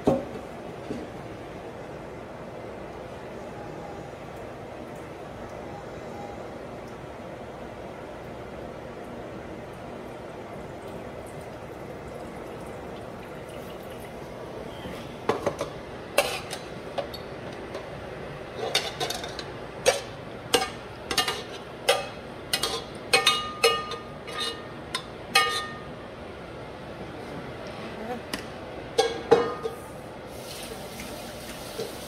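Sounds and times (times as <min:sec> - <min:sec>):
low kitchen hiss: 0:00.0 - 0:32.0
metal spoon clanking on pot: 0:18.6 - 0:25.9.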